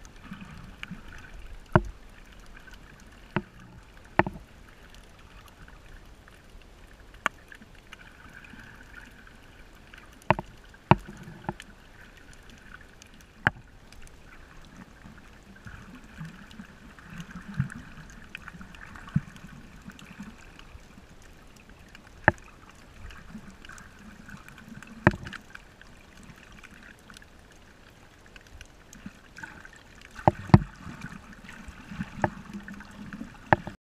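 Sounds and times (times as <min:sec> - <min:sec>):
muffled underwater water noise: 0:00.0 - 0:33.8
sharp clicks and knocks: 0:04.2 - 0:04.4, 0:10.3 - 0:11.6, 0:25.0 - 0:25.4.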